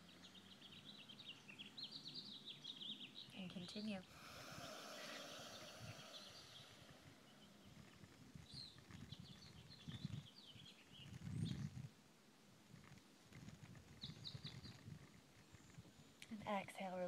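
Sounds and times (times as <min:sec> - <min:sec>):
faint bird chirps: 0:00.0 - 0:11.9, 0:13.7 - 0:16.2
low rumbles on microphone: 0:04.0 - 0:11.9.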